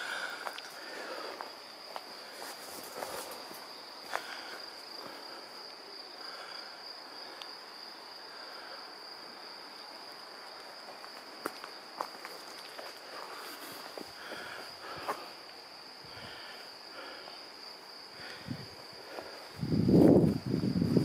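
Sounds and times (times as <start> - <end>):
high-pitched insect trill: 0.0 - 21.0.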